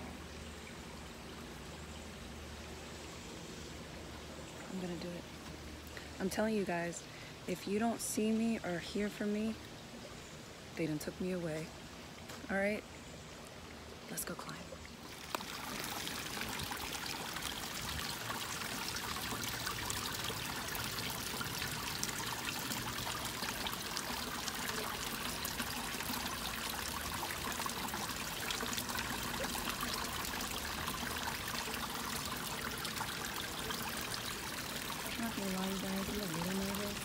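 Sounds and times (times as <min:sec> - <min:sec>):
waterfall splashing over rocks: 0:15.1 - 0:37.0.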